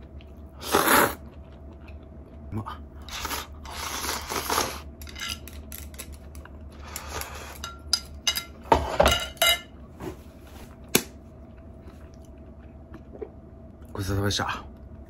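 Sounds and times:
chopsticks clinking on ceramic plate: 0:07.0 - 0:09.7.

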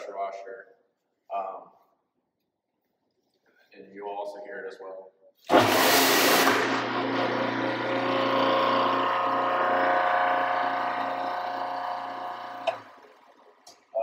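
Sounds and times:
pressure washer motor humming: 0:05.5 - 0:13.8.

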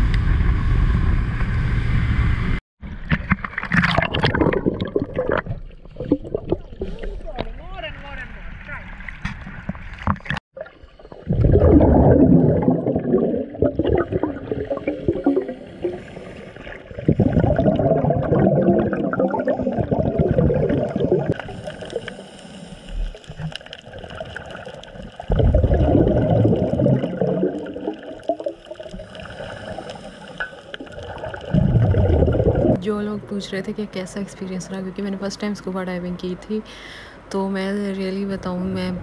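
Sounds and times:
underwater water noise: 0:00.0 - 0:33.4
exhaled air bubbling underwater: 0:03.5 - 0:07.2, 0:09.6 - 0:32.8.

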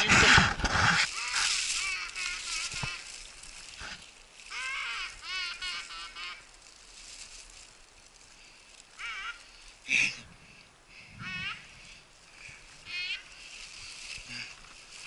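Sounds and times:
duck quacking: 0:04.5 - 0:06.4, 0:12.9 - 0:13.3.

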